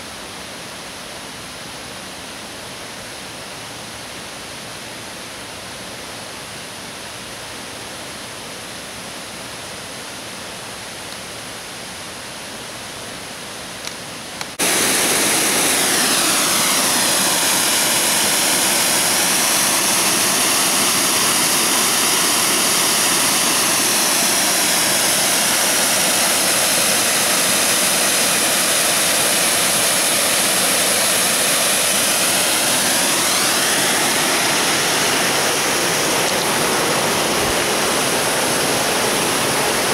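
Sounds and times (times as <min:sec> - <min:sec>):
water rushing over rocks: 0:14.4 - 0:39.9.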